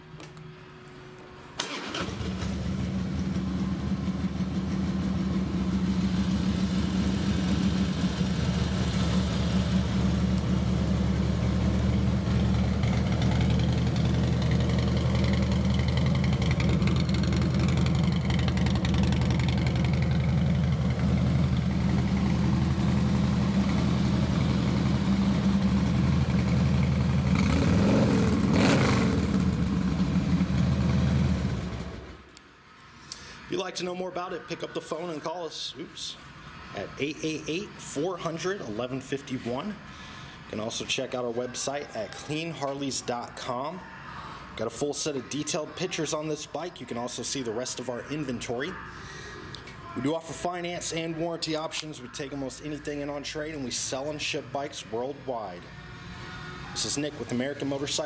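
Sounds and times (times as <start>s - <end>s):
motorcycle engine starting: 1.6s - 32.3s
motorcycle engine idling: 2.2s - 27.6s, 29.2s - 32.1s.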